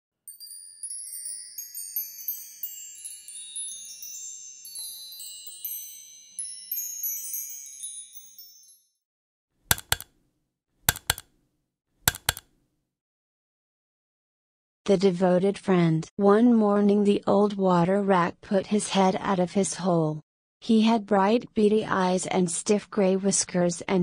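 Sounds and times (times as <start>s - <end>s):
twinkling bell-like chimes: 0.3s - 9.0s
mouse clicks: 9.7s - 10.2s, 10.9s - 11.4s, 12.1s - 12.6s.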